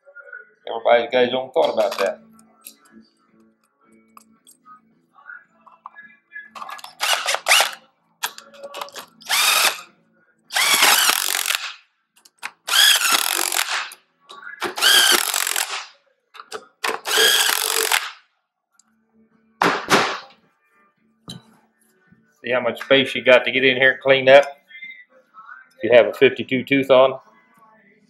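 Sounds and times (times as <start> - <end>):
power driver motor bursts: 10.6 - 11.6, 12.7 - 13.8, 14.8 - 15.8, 17.1 - 18.1.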